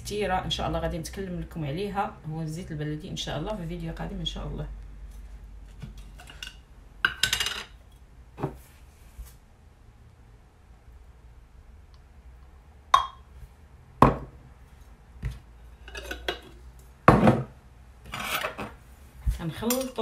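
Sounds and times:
glass jars clinking: 0:13.0 - 0:13.2, 0:15.8 - 0:16.6.

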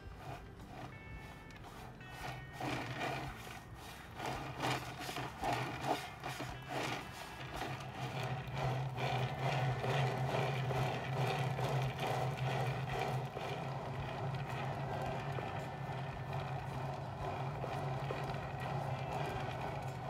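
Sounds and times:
plastic cake turntable turning: 0:00.0 - 0:20.0
steady low hum: 0:00.0 - 0:20.0.

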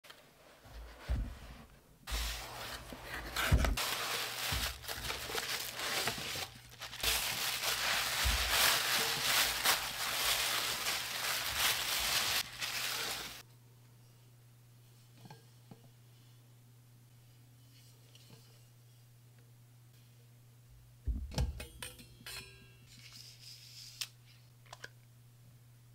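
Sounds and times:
paper crinkling and rustling: 0:02.1 - 0:13.4.

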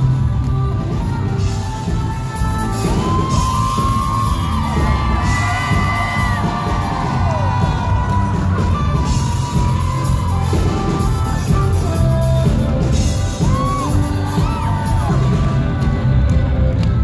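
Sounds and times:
live band playing loudly: 0:00.0 - 0:17.0
crowd whooping: 0:02.6 - 0:16.1.

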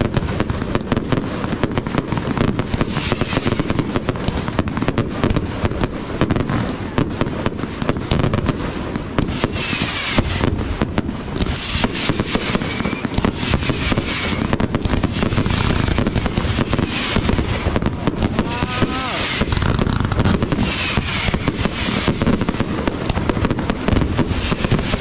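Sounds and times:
fireworks bursting: 0:00.0 - 0:25.0
fireworks crackling: 0:00.0 - 0:25.0
faint firework whistles: 0:02.7 - 0:04.1, 0:09.2 - 0:10.8, 0:11.4 - 0:25.0.

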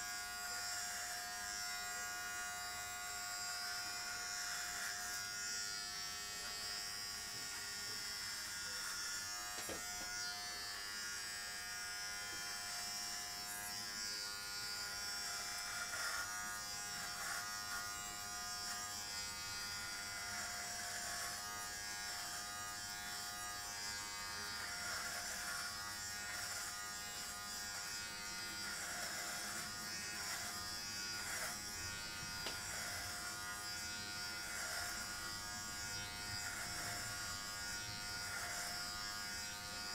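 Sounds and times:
hair trimmer buzzing: 0:00.0 - 0:39.9.

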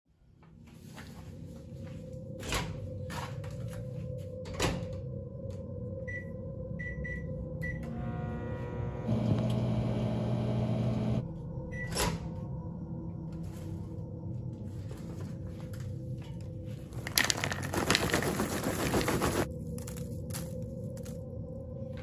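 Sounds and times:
microwave oven humming: 0:07.6 - 0:11.3.

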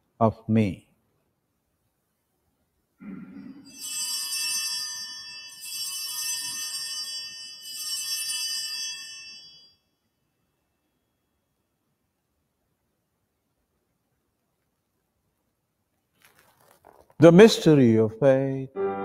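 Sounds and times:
small bells ringing: 0:03.5 - 0:09.8.

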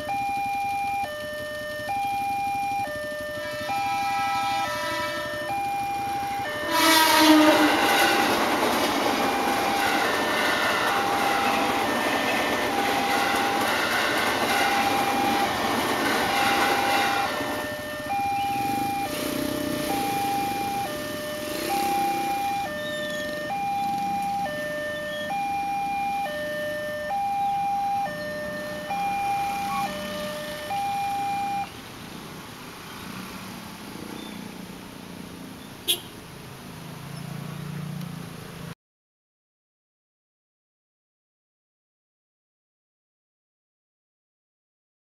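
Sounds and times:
level crossing warning alarm: 0:00.0 - 0:31.7
passing train rumble: 0:02.8 - 0:38.7
train horn: 0:03.4 - 0:05.6, 0:06.5 - 0:17.7.

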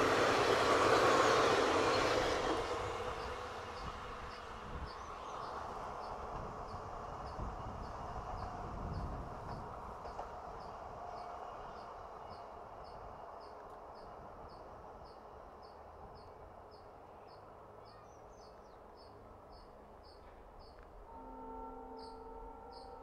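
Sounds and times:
steady multi-pitch tone: 0:21.1 - 0:23.0.

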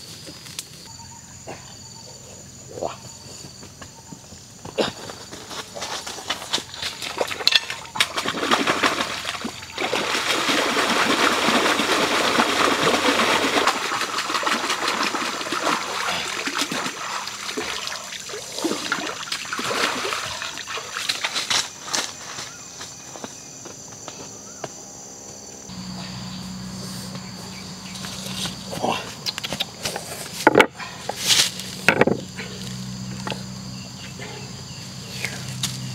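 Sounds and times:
footsteps crunching on stones: 0:03.4 - 0:08.1, 0:21.0 - 0:24.7, 0:26.8 - 0:32.8
water splashing and trickling: 0:06.7 - 0:21.6
steady low hum: 0:21.6 - 0:35.9.

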